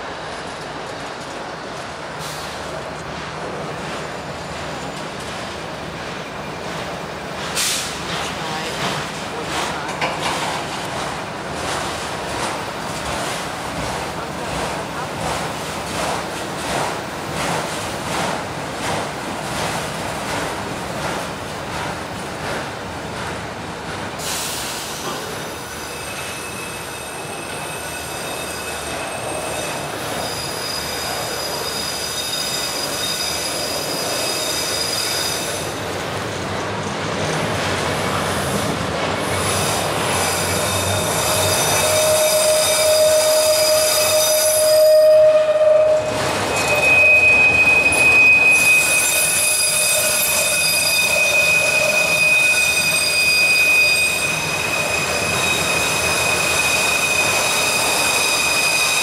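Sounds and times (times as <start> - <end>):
freight train rumble: 0.0 - 59.0
train wheels squealing on rails: 1.0 - 10.8, 24.1 - 36.2, 37.9 - 59.0.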